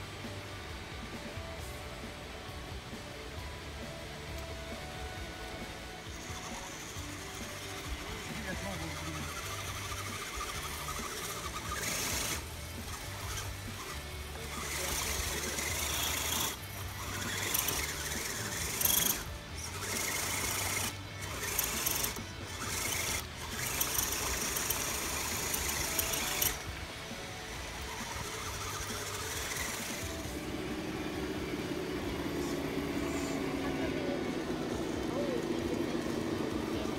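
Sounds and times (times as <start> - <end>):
electric motor whining: 0.0 - 36.9.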